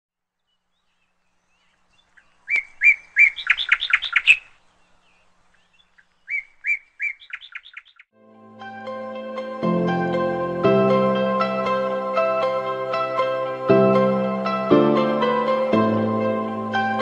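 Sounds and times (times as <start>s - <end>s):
songbird singing: 0.2s - 8.1s.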